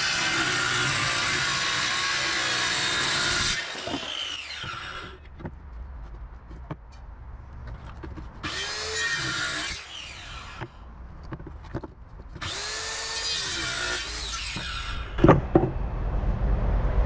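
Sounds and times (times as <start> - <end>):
circular saw cutting wood: 0.0 - 5.3, 8.4 - 10.8, 12.4 - 15.5.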